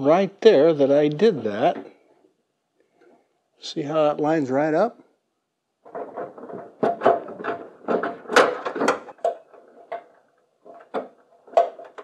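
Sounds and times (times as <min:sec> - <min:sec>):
car parts clicking and knocking: 0:05.8 - 0:12.0.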